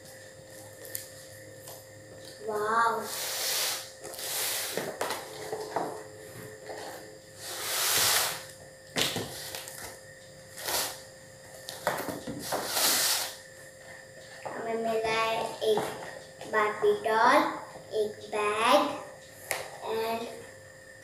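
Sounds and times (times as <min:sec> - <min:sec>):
cardboard rustling and scraping: 0:11.8 - 0:13.4.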